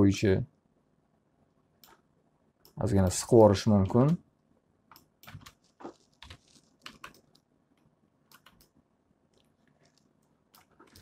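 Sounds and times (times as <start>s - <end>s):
computer keyboard keys clicking: 4.9s - 5.6s, 6.2s - 7.4s, 8.3s - 8.7s.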